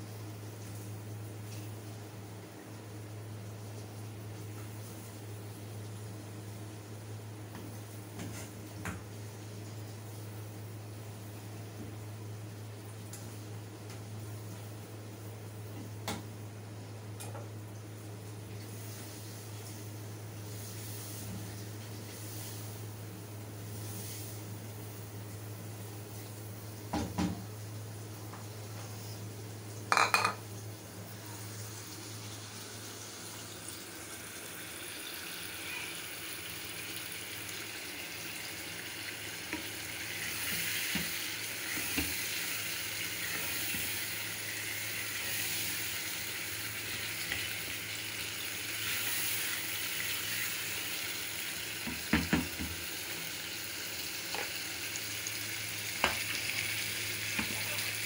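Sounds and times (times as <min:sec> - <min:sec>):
meat frying in a pan: 0:17.8 - 0:27.7, 0:29.7 - 0:58.0.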